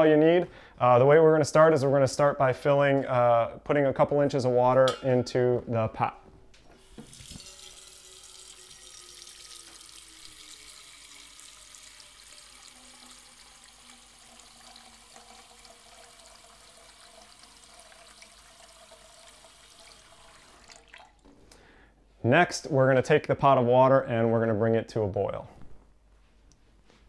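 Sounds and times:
tap water running into a saucepan: 6.7 - 21.3.

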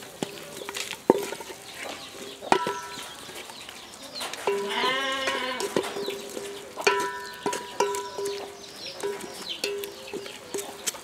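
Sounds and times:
wooden spoon knocking metal pot: 0.6 - 1.6, 2.4 - 3.2, 4.5 - 10.7.

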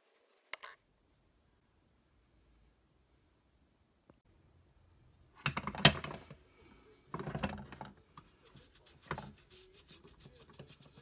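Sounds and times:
rapid rubbing strokes: 8.3 - 11.0.

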